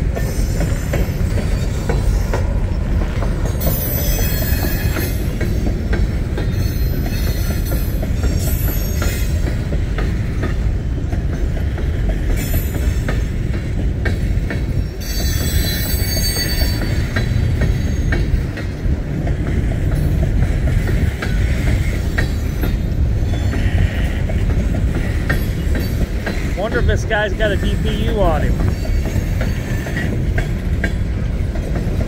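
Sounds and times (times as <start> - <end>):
freight train rumbling and rattling: 0.0 - 32.0
high wheel squeals: 3.4 - 5.6, 6.5 - 9.4, 14.8 - 18.4.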